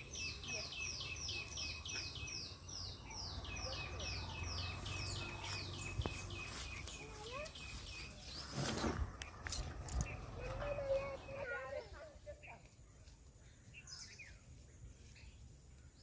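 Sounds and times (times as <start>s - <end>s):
rustling: 4.8s - 11.1s.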